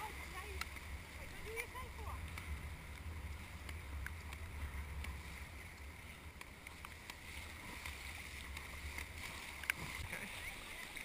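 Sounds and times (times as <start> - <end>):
paddle strokes: 0.0 - 11.0
sea water splashing around kayak: 0.0 - 11.0
faint ticks: 2.2 - 9.8.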